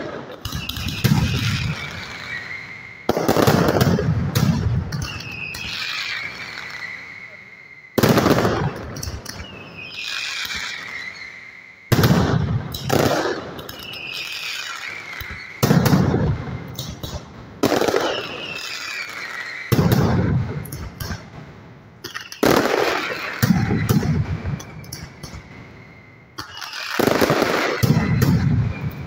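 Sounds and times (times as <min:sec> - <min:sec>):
loud firecracker bangs: 0:00.0 - 0:06.6, 0:08.0 - 0:10.6, 0:11.9 - 0:21.4, 0:22.0 - 0:25.7, 0:26.3 - 0:29.0
falling whistle: 0:00.4 - 0:03.8, 0:04.9 - 0:12.1, 0:13.6 - 0:16.8, 0:17.7 - 0:20.1, 0:22.1 - 0:29.0.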